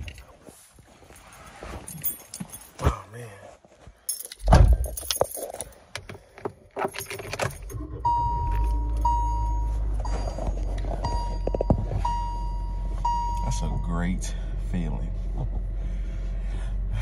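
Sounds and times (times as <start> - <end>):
car keys jangling: 1.8 - 2.8, 4.1 - 13.4
car engine starting and running: 4.5 - 17.0
dashboard warning chime: 7.7 - 14.4.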